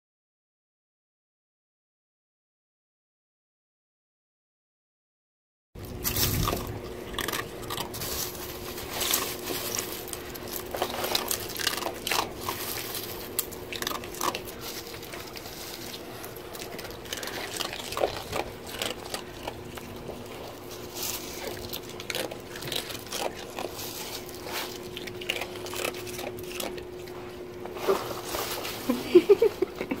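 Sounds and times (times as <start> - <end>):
shells crunching and cracking: 5.8 - 27.7
steady hum: 5.8 - 30.0.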